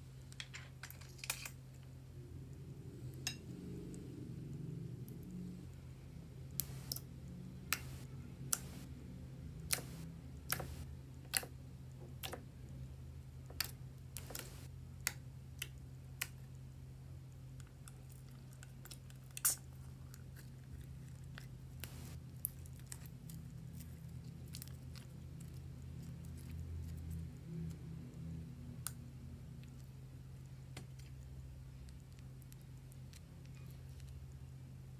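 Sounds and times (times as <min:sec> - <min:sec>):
steady low hum: 0:01.6 - 0:34.9
sharp clicks and taps: 0:07.7 - 0:08.9, 0:09.7 - 0:11.5.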